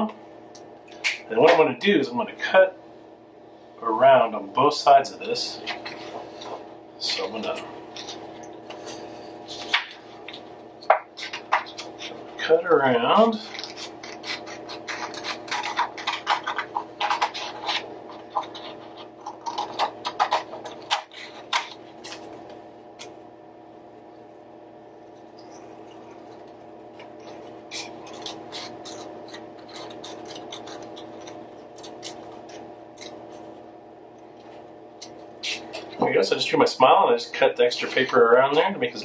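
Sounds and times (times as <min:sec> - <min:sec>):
scissors snipping paper: 0:13.4 - 0:22.3, 0:25.5 - 0:33.5.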